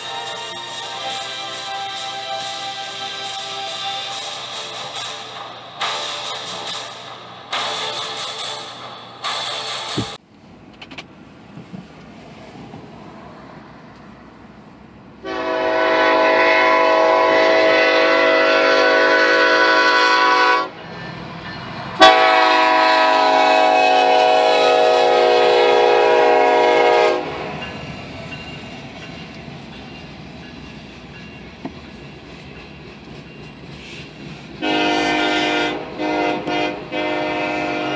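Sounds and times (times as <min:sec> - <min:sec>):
low rumble of train: 0:00.0 - 0:37.9
locomotive air horn blasts: 0:15.2 - 0:20.8, 0:22.0 - 0:27.6, 0:34.6 - 0:37.9.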